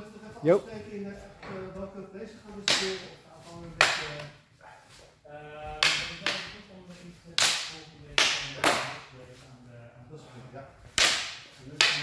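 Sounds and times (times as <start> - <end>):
sabres clashing: 10.9 - 12.0.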